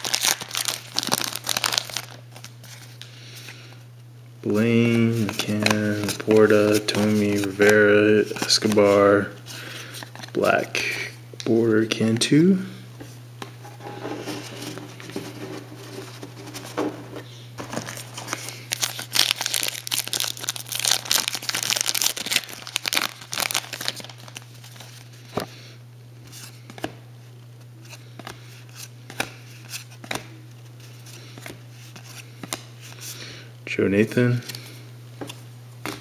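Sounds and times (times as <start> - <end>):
foil pack tearing and crinkling: 0.0 - 2.5, 17.6 - 25.0.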